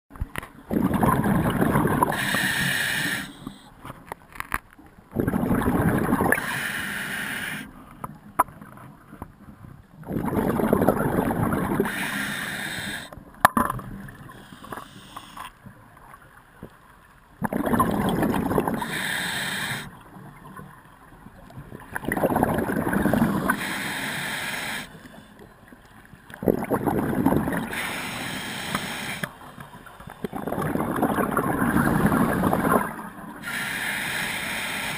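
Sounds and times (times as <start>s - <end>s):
exhaled bubbles underwater: 0.7s - 3.4s, 5.1s - 6.6s, 9.9s - 14.4s, 17.3s - 25.2s, 26.3s - 29.2s, 29.8s - 34.9s.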